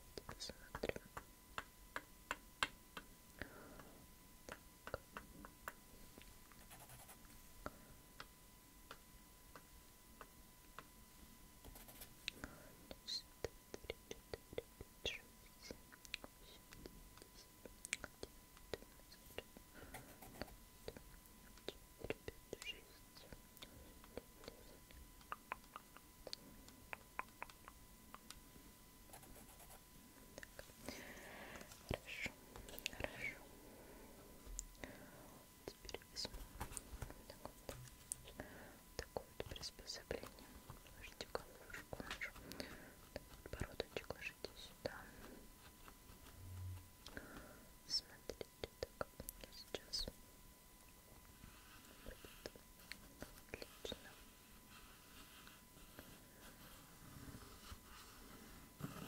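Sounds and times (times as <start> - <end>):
wooden sticks clicking and tapping: 25.2 - 28.4.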